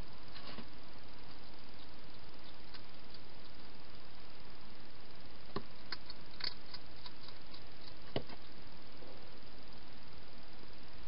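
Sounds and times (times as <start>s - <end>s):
steady hiss: 0.0s - 11.0s
hedgehog chewing clicks: 1.3s - 3.6s, 5.5s - 8.5s.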